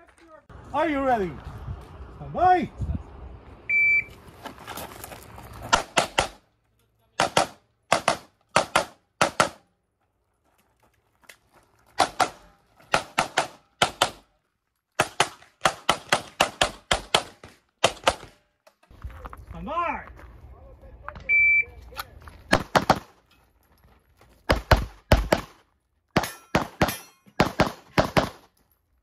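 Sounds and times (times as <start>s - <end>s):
pistol shots: 7.2s - 9.6s, 12.0s - 14.2s, 15.0s - 18.4s, 22.5s - 23.1s, 24.5s - 25.6s, 26.2s - 28.5s.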